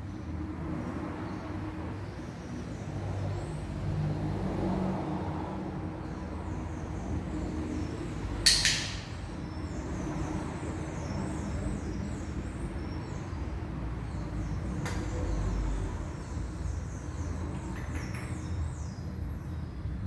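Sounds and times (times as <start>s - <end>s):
dog-training clicker click: 8.5s - 9.0s.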